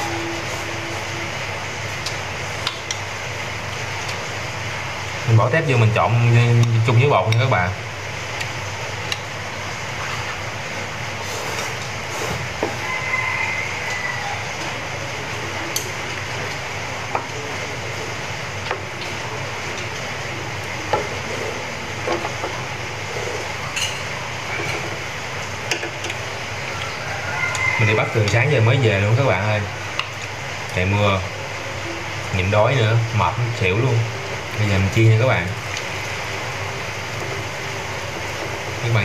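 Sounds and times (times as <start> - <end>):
oil hissing in a frying pan: 31.4 - 39.0.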